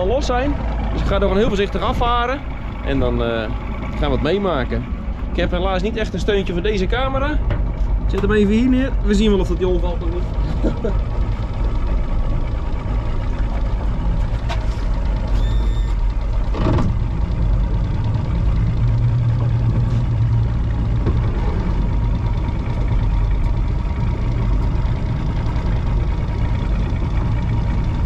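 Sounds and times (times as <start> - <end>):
outboard motor running: 0.0 - 28.0
short high electronic beep: 15.4 - 16.0.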